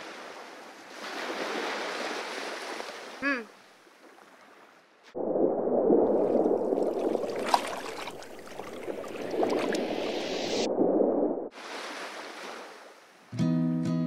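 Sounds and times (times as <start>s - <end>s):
muffled underwater water rush: 4.3s - 12.7s
crackles and bubble pops: 5.1s - 11.5s.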